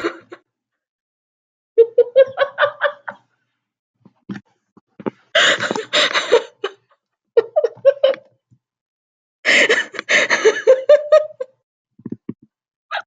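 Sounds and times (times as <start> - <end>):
woman laughing uncontrollably: 0.0 - 0.4, 1.8 - 3.2, 5.4 - 8.3, 9.5 - 11.6.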